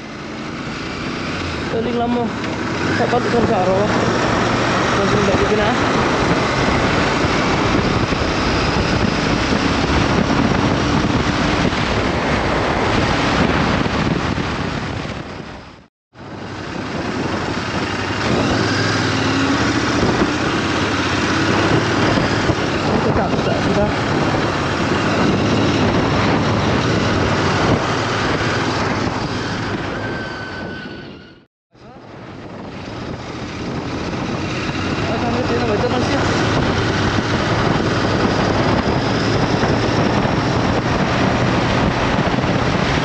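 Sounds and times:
motorcycle engine hum: 0.0s - 43.0s
wind rushing over microphone: 0.0s - 43.0s
faint motorcycle engine hum: 31.8s - 43.0s.

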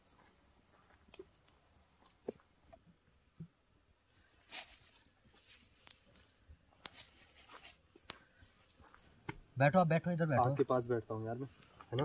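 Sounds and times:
short rustle: 4.4s - 7.8s.

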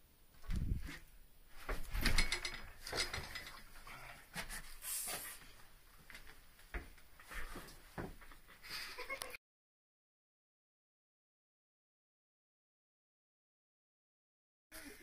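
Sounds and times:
brief hiss: 4.8s - 5.4s.

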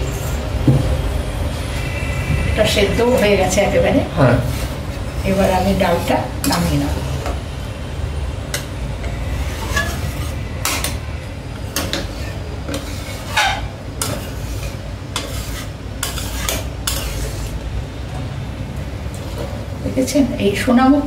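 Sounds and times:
low rumble: 0.5s - 5.3s
metal spatula scraping pan: 1.6s - 7.4s, 8.5s - 17.6s.

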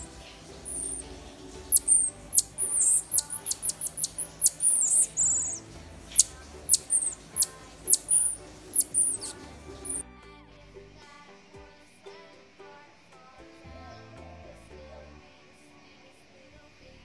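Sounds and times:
baby marmoset chirps and squeaks: 0.0s - 10.0s
faint background music: 0.0s - 17.0s.

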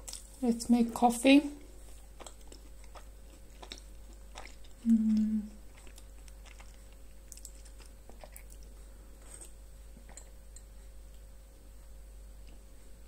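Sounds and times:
person chewing and swallowing: 1.6s - 11.3s
person humming: 4.8s - 5.6s.

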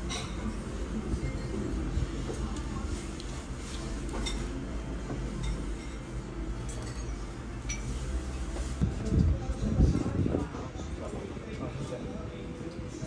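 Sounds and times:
dishes and cutlery clinking: 0.0s - 8.8s
low restaurant hum: 0.0s - 13.0s.

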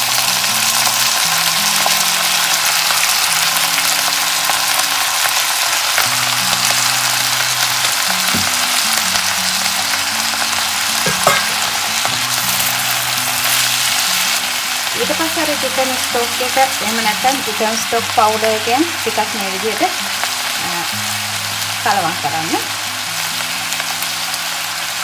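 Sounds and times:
noodles sizzling in oil: 0.0s - 25.0s
spatula knocking on pan: 8.3s - 8.6s, 11.0s - 11.8s.

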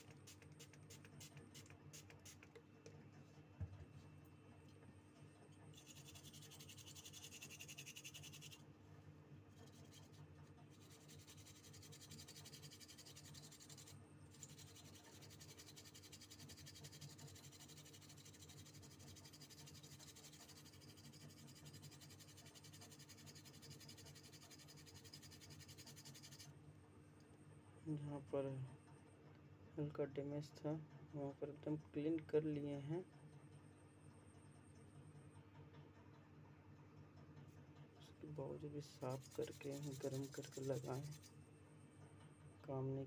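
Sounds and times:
low steady hum: 0.0s - 43.0s
scrubbing circuit board: 5.8s - 8.6s, 38.8s - 41.3s.

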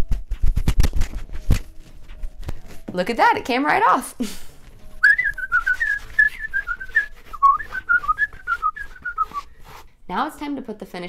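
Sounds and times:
person whistling a tune: 5.0s - 9.5s.

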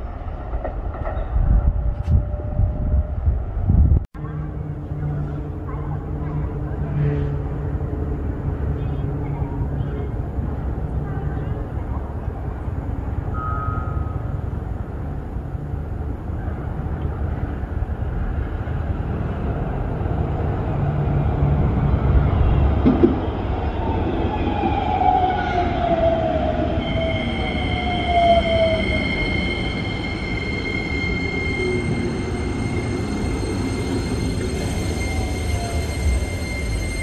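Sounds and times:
train wheels rumbling on rails: 15.2s - 37.0s
high brake squeal: 26.7s - 37.0s.

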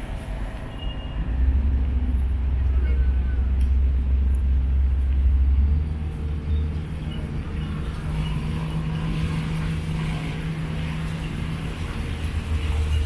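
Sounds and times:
motorboat engine droning: 1.2s - 13.0s
water hissing along hull: 8.0s - 13.0s.

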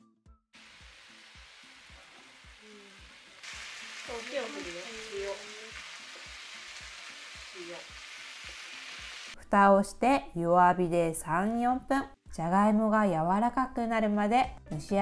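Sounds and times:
potatoes and onions sizzling in pan: 0.6s - 9.4s.

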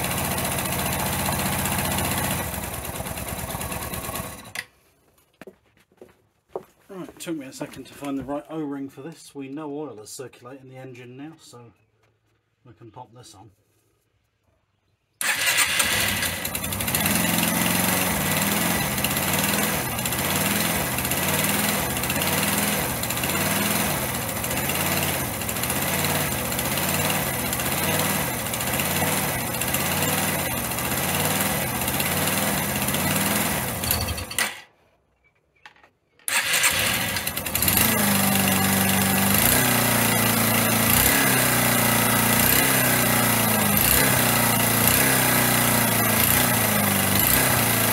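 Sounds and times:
motorcycle engine revving: 0.0s - 4.6s, 15.2s - 34.6s, 36.3s - 47.9s.

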